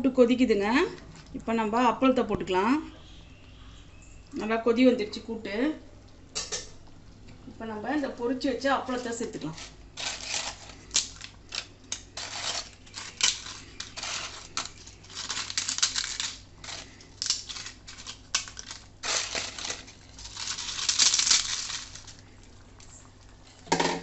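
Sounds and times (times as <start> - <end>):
crisp papads crunching: 9.0 - 22.9.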